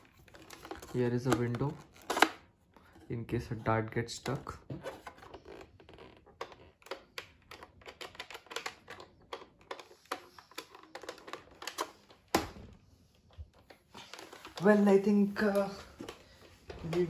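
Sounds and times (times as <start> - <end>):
hands handling plastic toy blaster: 0.0 - 3.1, 4.1 - 12.6.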